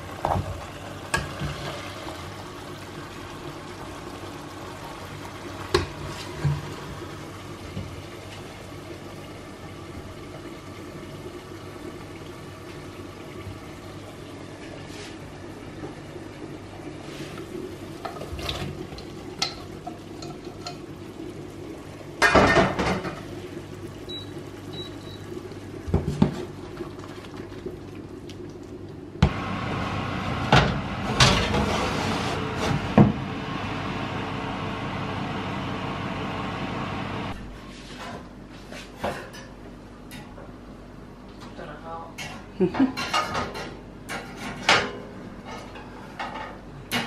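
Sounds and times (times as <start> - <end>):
pots and utensils clinking: 18.0 - 20.9, 42.2 - 47.0.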